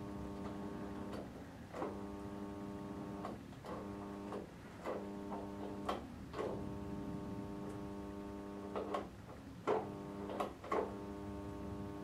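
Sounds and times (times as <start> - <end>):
transformer mains buzz: 0.0 - 12.0.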